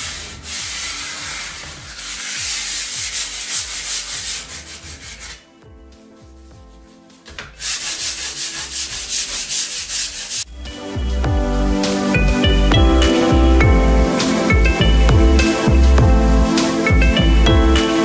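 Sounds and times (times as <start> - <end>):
sandpaper rubbing on a door: 0.0 - 5.5, 6.7 - 10.5.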